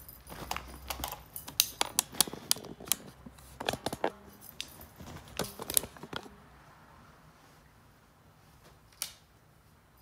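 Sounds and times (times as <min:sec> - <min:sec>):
cat claws clicking on wood floor: 0:00.3 - 0:06.3.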